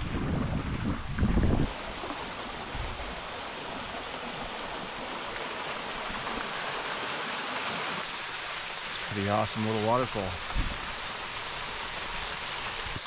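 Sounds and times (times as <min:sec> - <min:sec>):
wind buffeting microphone: 0:00.0 - 0:01.8
small waterfall rushing: 0:01.6 - 0:13.0.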